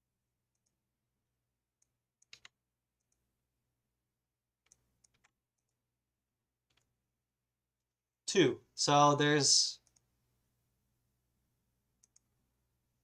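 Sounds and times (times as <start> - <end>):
keyboard and mouse clicks: 1.8 - 3.2, 4.6 - 5.8, 6.6 - 6.9, 9.8 - 10.1, 12.0 - 12.4.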